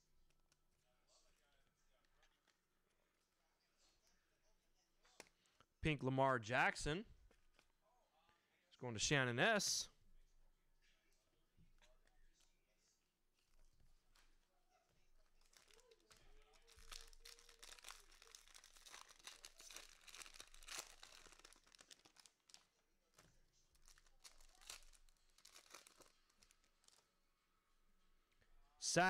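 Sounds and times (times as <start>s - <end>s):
plastic wrapper tearing and crinkling: 15.2s - 27.0s.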